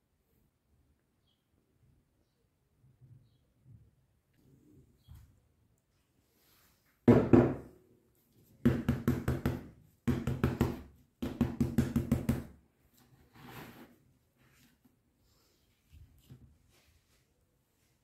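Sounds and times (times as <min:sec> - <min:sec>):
paper cup knocking on table: 0:07.1 - 0:07.7.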